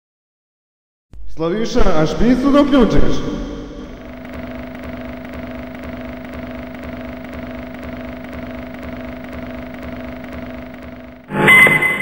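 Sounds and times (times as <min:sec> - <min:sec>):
drone with two held tones: 0:03.0 - 0:12.0
fluttering low rumble: 0:03.4 - 0:11.3.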